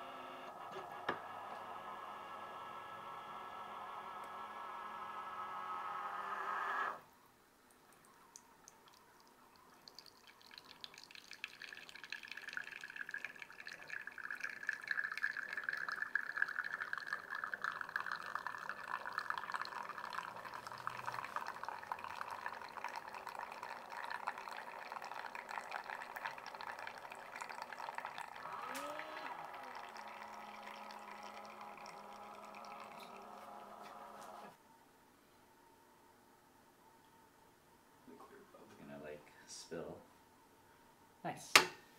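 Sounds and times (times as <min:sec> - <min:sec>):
espresso trickling into cup: 0:09.8 - 0:34.5.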